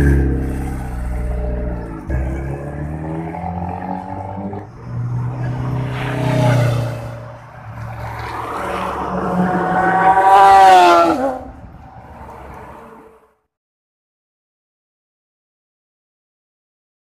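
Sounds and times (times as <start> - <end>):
motorcycle engines revving: 0.0 - 13.1
motorcycle passing by: 0.0 - 13.2.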